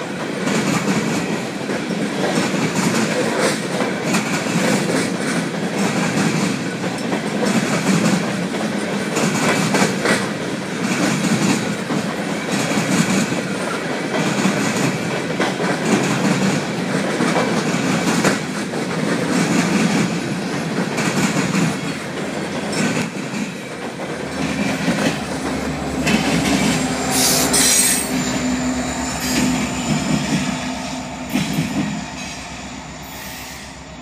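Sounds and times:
wheels clicking over rail joints: 0:00.0 - 0:28.4
rail cars rumbling past: 0:00.0 - 0:34.0
diesel locomotive hum: 0:09.7 - 0:34.0
high squeal: 0:24.3 - 0:34.0.

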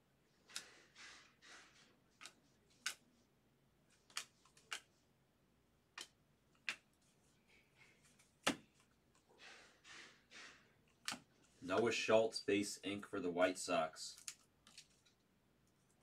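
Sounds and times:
cards sliding swishes: 0:00.4 - 0:03.2, 0:06.0 - 0:11.9
trading cards clicking: 0:04.0 - 0:04.9.

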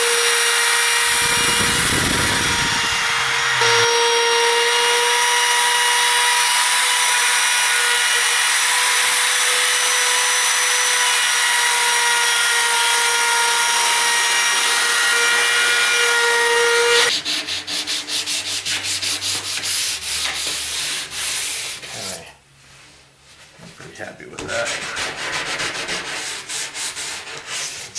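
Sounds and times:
router whining while cutting wood: 0:00.0 - 0:17.1
hand-sanding strokes on board: 0:17.0 - 0:22.2, 0:24.5 - 0:27.9.

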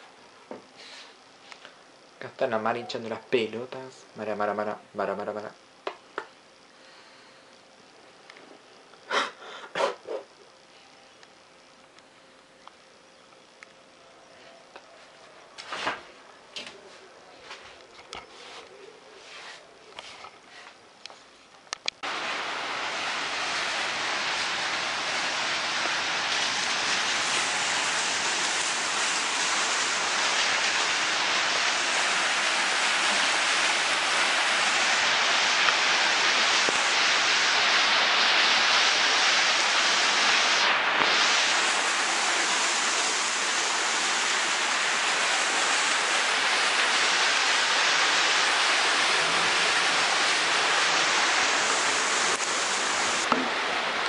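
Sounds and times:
running water rushing: 0:22.0 - 0:54.0.

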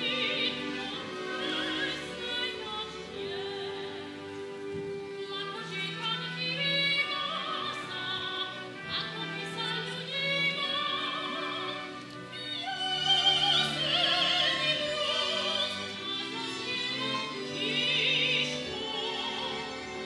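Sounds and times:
operatic soprano singing: 0:00.0 - 0:20.0
orchestral accompaniment: 0:00.0 - 0:20.0.

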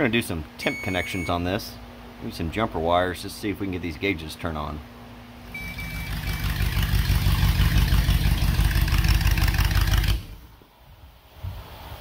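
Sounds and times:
van engine running: 0:05.4 - 0:10.6.

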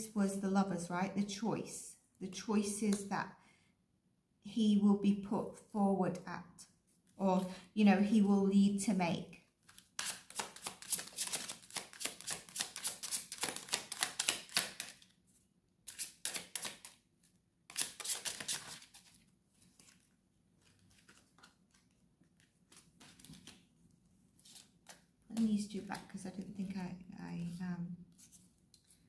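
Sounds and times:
cards being shuffled: 0:09.6 - 0:15.1, 0:15.8 - 0:17.0, 0:17.7 - 0:23.7, 0:24.4 - 0:26.2.

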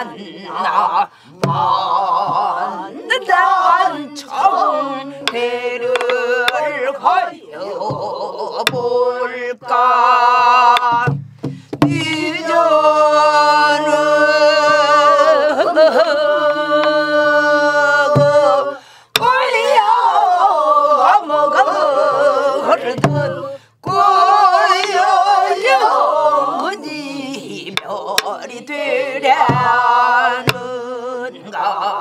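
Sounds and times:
solo voice singing folk song: 0:00.0 - 0:32.0
singer breathing: 0:01.1 - 0:01.5, 0:11.2 - 0:11.8, 0:18.8 - 0:19.2, 0:23.5 - 0:23.8.

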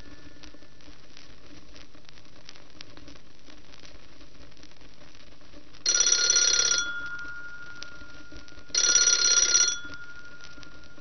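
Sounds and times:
telephone ringing: 0:05.9 - 0:11.0.

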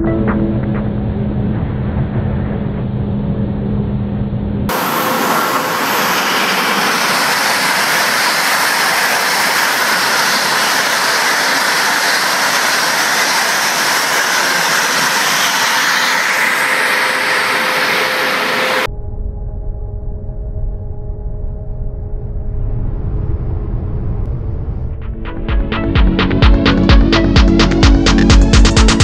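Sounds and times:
high-speed train rushing past: 0:00.1 - 0:18.9.

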